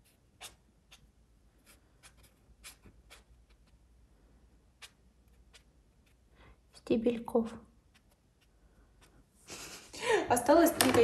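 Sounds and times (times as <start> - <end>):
marker scratching on paper: 0.0 - 3.9, 4.7 - 6.9, 7.8 - 9.2.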